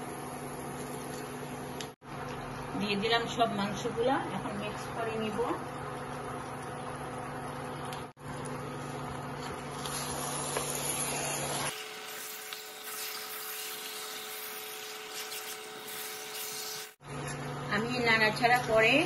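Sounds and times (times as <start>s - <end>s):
meat sizzling in a pot: 8.7s - 17.0s.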